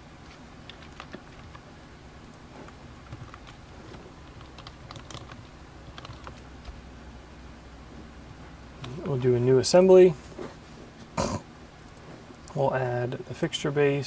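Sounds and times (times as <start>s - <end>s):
keyboard typing: 0.6s - 1.6s, 3.0s - 6.5s.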